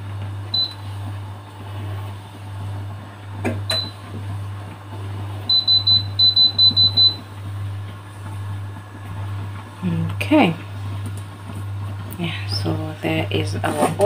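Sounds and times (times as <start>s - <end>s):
steady low hum: 0.0s - 14.0s
electric hob touch beeps: 0.2s - 1.2s, 1.8s - 7.8s.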